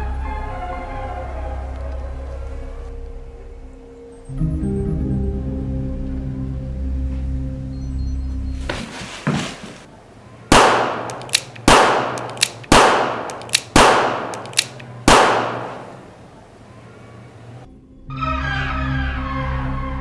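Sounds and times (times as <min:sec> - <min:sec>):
small sharp cracks: 0:10.5 - 0:16.0
revolver shots echoing: 0:10.5 - 0:16.2.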